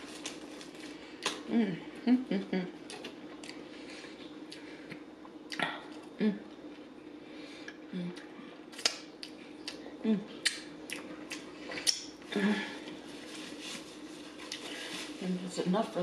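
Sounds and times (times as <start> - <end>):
paper napkin rustling: 12.9 - 16.0.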